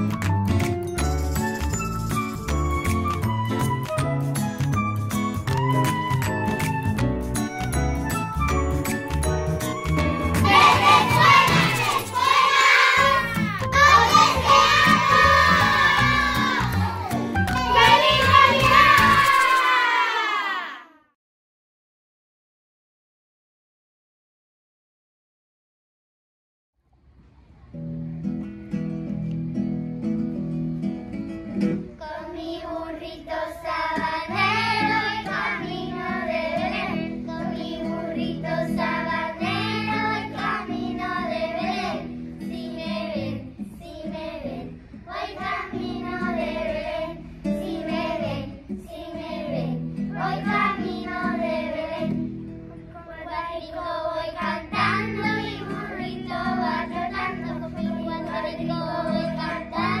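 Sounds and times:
children singing in unison: 0:10.4 - 0:13.2, 0:13.8 - 0:17.0, 0:32.0 - 0:42.0, 0:45.1 - 0:52.2, 0:53.2 - 1:00.0.

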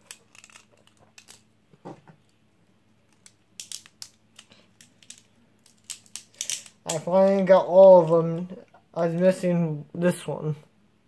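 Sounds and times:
small plastic parts clicking: 0:00.0 - 0:01.5, 0:03.1 - 0:07.4.

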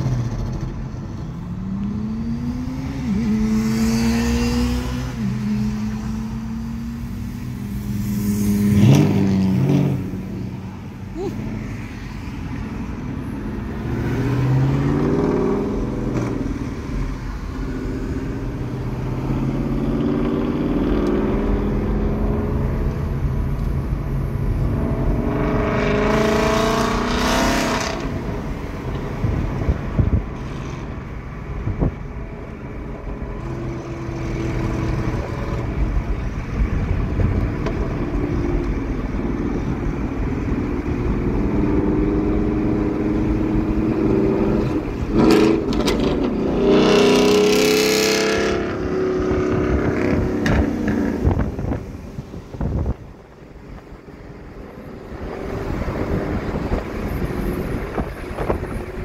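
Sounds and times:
road noise: 0:00.0 - 0:59.0
car engine accelerating hard: 0:13.5 - 0:31.0.

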